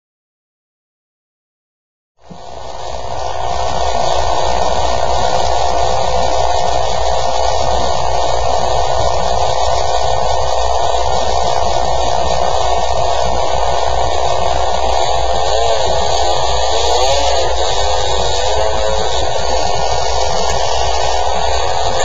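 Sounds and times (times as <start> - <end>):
steady hum with hiss: 2.2 - 22.0.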